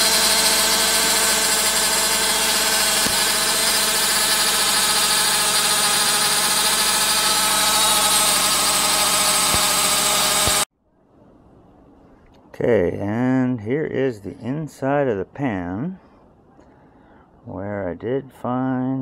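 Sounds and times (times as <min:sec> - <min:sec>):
car engine idling: 0:00.0 - 0:10.6
transmission pump whine: 0:00.0 - 0:10.7.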